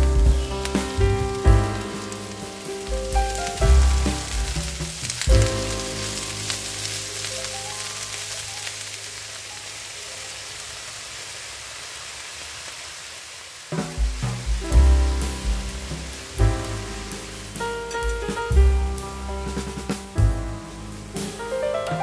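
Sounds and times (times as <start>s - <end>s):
background music: 0.0s - 7.6s, 14.2s - 22.0s
spinach sizzling in a frying pan: 0.0s - 22.0s.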